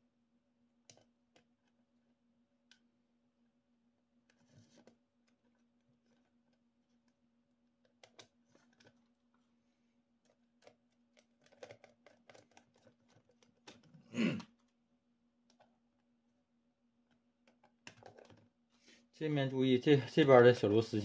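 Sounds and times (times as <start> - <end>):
faint steady hum: 0.0 - 21.0
plastic panels clicking and tapping: 17.4 - 18.5.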